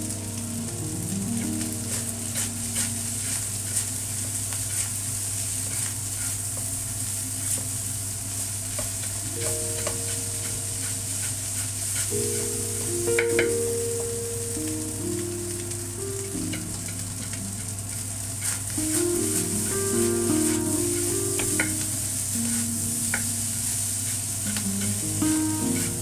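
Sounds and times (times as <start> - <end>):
rice sizzling in a wok: 0.0 - 26.0
spatula scraping a wok: 1.8 - 6.8, 8.8 - 12.6, 16.8 - 26.0.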